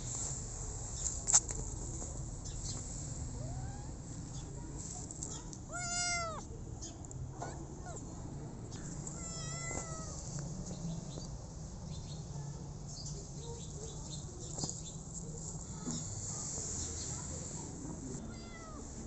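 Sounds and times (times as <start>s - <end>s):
kitten meowing: 3.4s - 4.0s, 5.7s - 6.5s, 9.1s - 10.2s, 18.2s - 18.9s.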